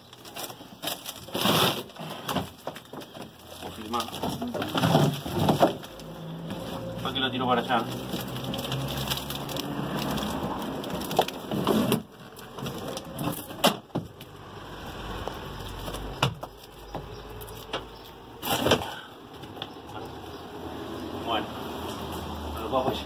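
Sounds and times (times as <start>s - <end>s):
fiberglass floor tearing and splintering: 0.1s - 3.0s, 7.8s - 14.2s
sharp cracks and knocks: 8.0s - 14.4s, 15.2s - 19.8s.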